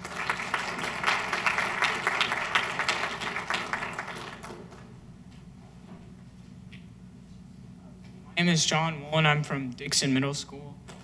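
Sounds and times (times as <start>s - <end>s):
small audience applauding: 0.0s - 5.0s.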